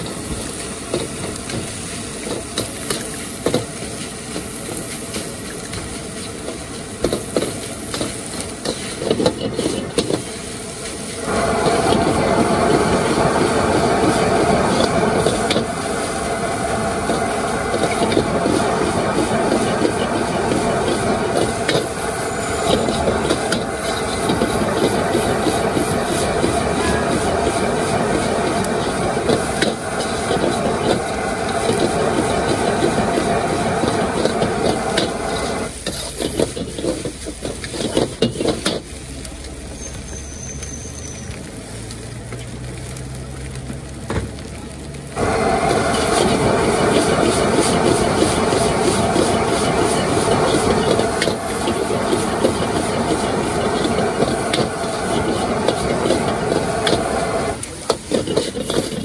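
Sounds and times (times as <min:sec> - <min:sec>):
food sizzling in a wok: 0:00.0 - 0:59.0
metal spatula scraping a wok: 0:07.2 - 0:10.3, 0:17.7 - 0:38.9, 0:45.9 - 0:59.0.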